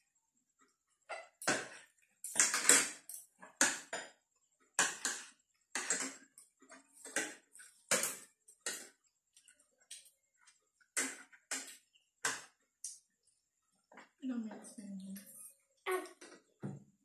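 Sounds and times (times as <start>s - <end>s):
cutlery scraping and clinking on plates: 1.1s - 4.1s, 4.8s - 9.0s.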